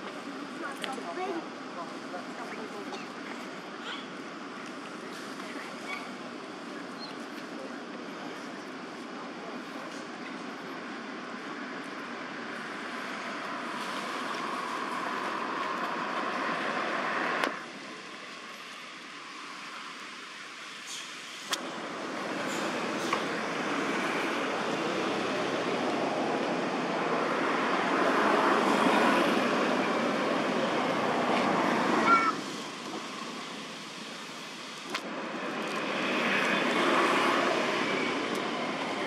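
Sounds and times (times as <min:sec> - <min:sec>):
passing road traffic: 0:00.0 - 0:39.0.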